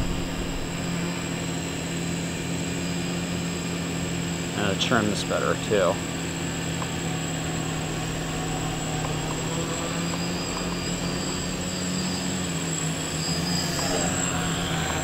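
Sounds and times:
quadcopter motors buzzing: 0.0s - 15.0s
thin high whine: 0.0s - 15.0s.

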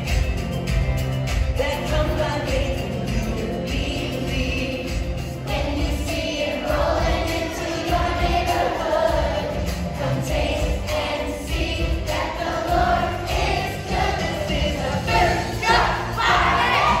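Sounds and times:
backing music with steady beat: 0.0s - 17.0s
children singing: 3.9s - 17.0s.

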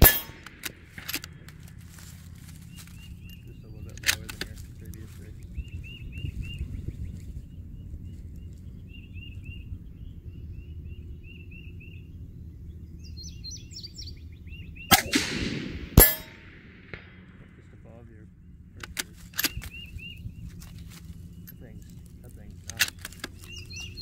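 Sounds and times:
rifle shots cracking: 0.0s - 2.1s, 14.9s - 17.7s
small bird chirping: 1.7s - 15.1s, 17.8s - 24.0s.

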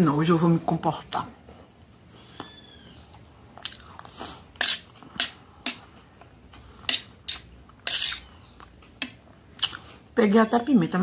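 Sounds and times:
chewing: 3.1s - 4.4s
metal spoon scraping metal plate: 6.9s - 8.3s.

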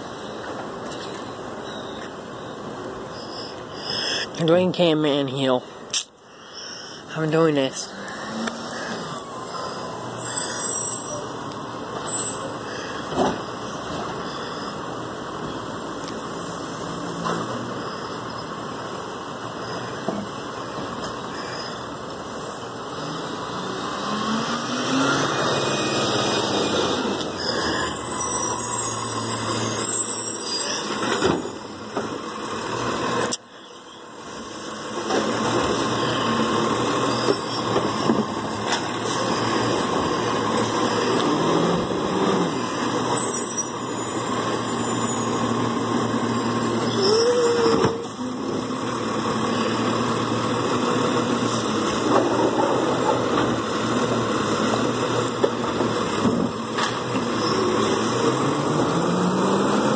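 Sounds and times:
short squeal: 1.0s - 4.2s, 8.2s - 11.4s, 12.0s - 12.5s, 25.0s - 31.7s, 36.0s - 38.2s, 43.1s - 46.2s, 46.8s - 48.2s, 57.3s - 58.1s
garbage truck engine: 5.6s - 59.9s
hydraulic arm lifting carts: 7.9s - 59.9s.

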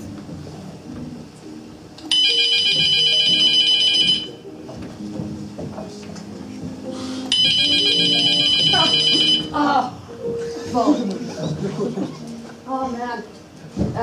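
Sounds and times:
soft upright piano notes: 0.0s - 3.7s, 4.4s - 14.0s
electronic phone ringtone: 2.1s - 4.5s, 7.3s - 9.6s.

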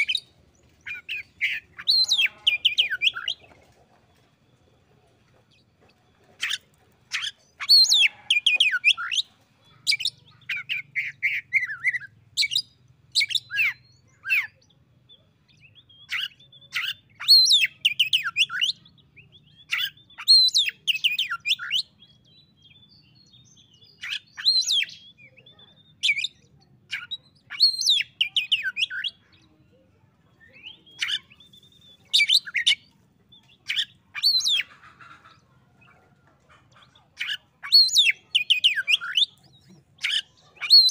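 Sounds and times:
songbird whistles and trills: 23.8s - 29.3s.

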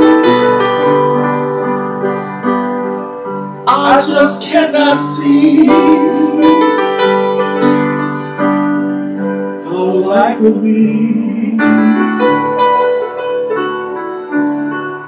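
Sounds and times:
piano chords: 0.0s - 15.0s
wordless vocal slide: 3.7s - 7.2s, 9.6s - 12.2s.

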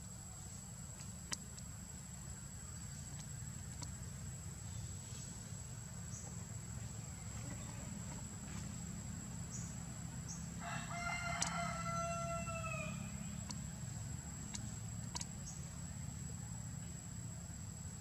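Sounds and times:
rooster crowing: 10.6s - 13.3s.

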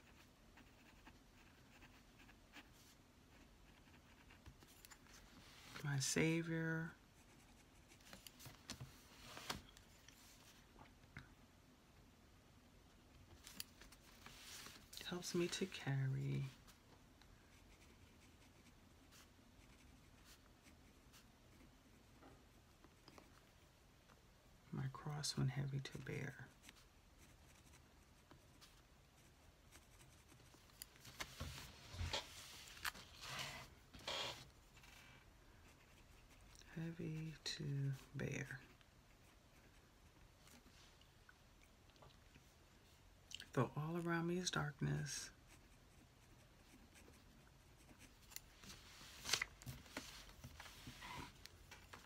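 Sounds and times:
paper rustling: 48.6s - 52.0s.

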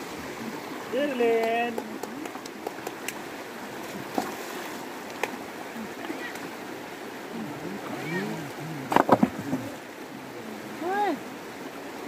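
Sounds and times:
river running over stones: 0.0s - 12.0s
clicks and splashes from wading: 1.3s - 6.6s.

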